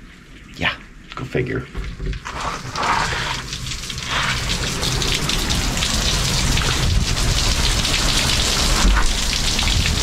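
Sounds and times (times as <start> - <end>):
heavy rain pouring: 2.1 - 10.0.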